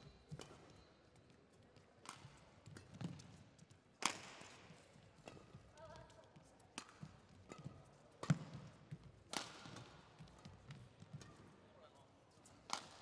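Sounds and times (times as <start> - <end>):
shoe squeak: 0.0 - 1.0
racket hitting shuttlecock: 4.0 - 4.6, 6.8 - 10.8, 12.7 - 13.0.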